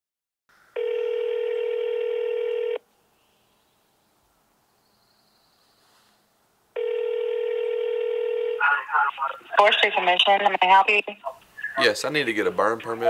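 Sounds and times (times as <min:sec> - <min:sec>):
telephone ringback tone: 0:00.8 - 0:02.8, 0:06.8 - 0:08.7.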